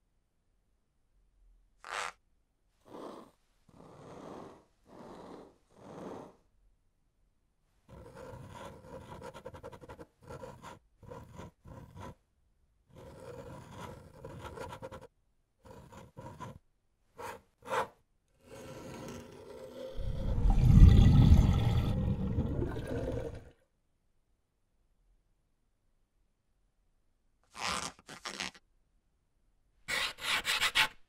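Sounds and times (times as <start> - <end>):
pen scratching on paper: 2.8 - 6.4, 7.9 - 12.2, 12.9 - 16.6, 17.2 - 19.8, 29.9 - 30.9.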